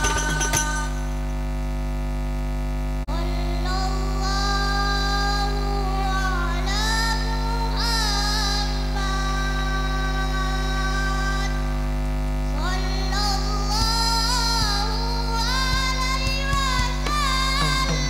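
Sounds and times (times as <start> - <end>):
mains hum: 0.0 - 18.0
solo voice singing melismatically: 3.1 - 11.8, 12.6 - 18.0.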